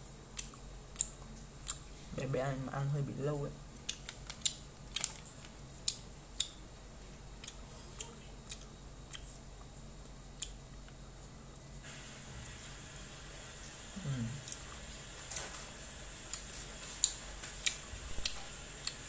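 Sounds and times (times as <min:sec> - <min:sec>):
faint low hum: 0:00.0 - 0:19.0
mouth and teeth clicks chewing: 0:00.4 - 0:01.8, 0:03.8 - 0:06.6, 0:16.3 - 0:19.0.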